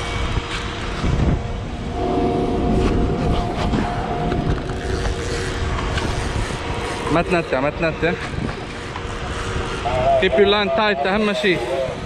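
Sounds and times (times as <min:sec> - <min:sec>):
wind rushing over microphone: 0:00.0 - 0:12.0
outboard engines running: 0:01.6 - 0:12.0
steady higher tone: 0:01.7 - 0:05.7.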